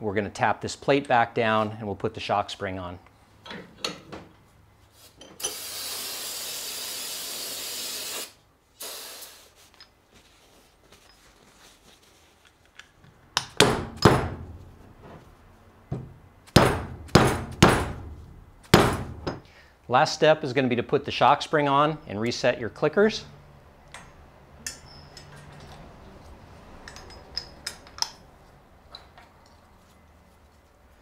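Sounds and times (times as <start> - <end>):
steady hiss: 5.4 - 9.8.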